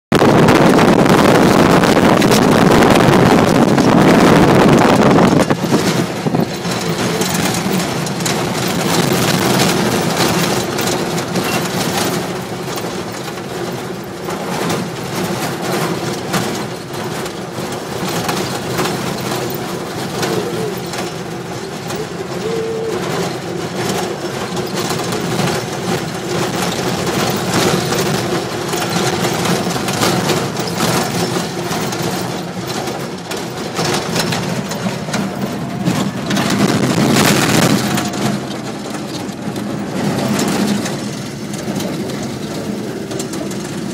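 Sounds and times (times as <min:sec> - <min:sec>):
loud rushing noise: 0:00.1 - 0:10.7, 0:33.6 - 0:43.9
bodywork knocking and rattling: 0:00.1 - 0:22.4, 0:23.0 - 0:43.9
jeep engine running: 0:00.1 - 0:43.9.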